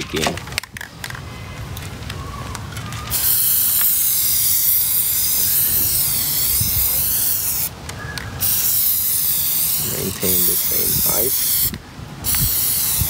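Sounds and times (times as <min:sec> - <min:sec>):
aerosol spray can hissing: 0:03.1 - 0:07.7, 0:08.4 - 0:13.0.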